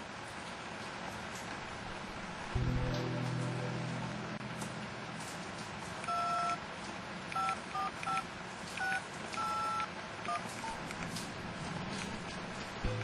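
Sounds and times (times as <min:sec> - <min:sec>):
phone keypad tones: 0:06.1 - 0:06.6, 0:07.3 - 0:08.2, 0:08.8 - 0:11.0.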